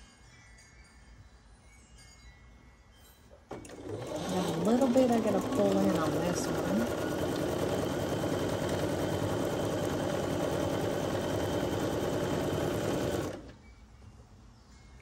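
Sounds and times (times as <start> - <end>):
sewing machine stitching: 3.5 - 13.6.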